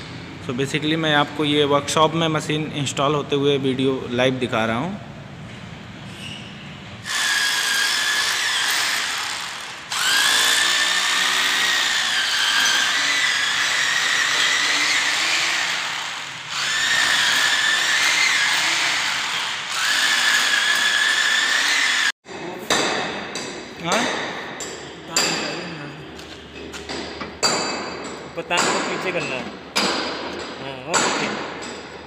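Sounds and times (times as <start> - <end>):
power drill boring into concrete: 7.0 - 22.1.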